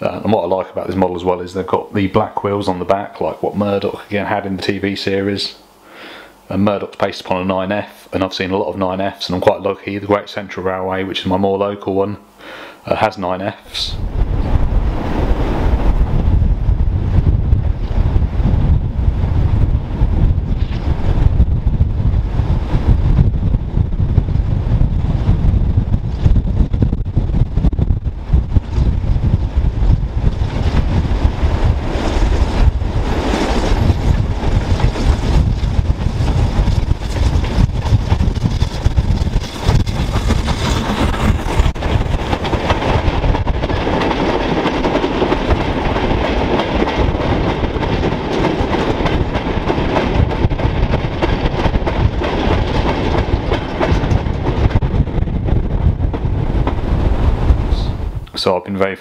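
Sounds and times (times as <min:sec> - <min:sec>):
wind buffeting microphone: 0:13.8 - 0:58.3
train wheels clattering over rail joints: 0:30.0 - 0:57.1.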